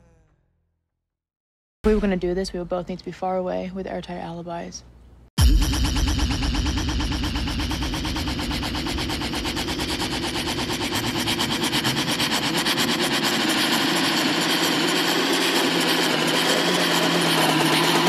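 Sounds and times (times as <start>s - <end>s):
electronic pulsing drone music: 5.4s - 18.0s.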